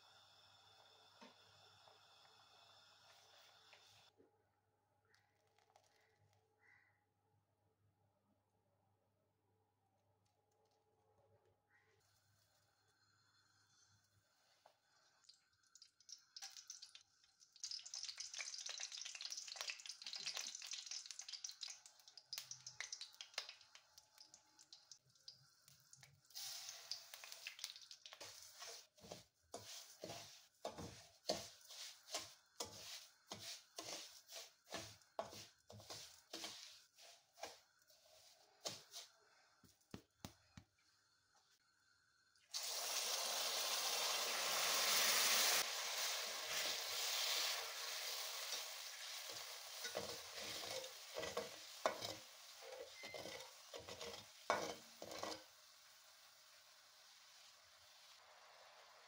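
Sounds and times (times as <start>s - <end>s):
liquid hissing in hot pot: 26.3s - 37.5s, 42.5s - 59.0s
metal spatula scraping a pot: 28.2s - 39.1s, 48.5s - 55.5s.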